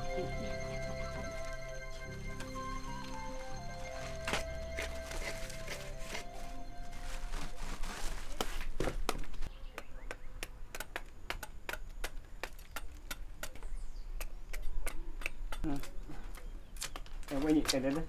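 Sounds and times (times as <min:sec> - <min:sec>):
knife peeling roots: 0:10.4 - 0:17.8.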